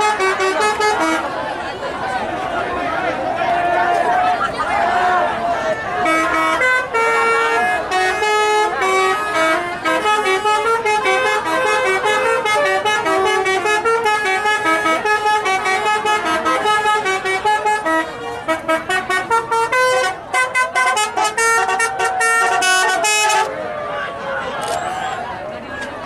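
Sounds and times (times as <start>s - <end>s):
multi-tone air horn melody: 0.0s - 1.5s, 5.9s - 23.5s.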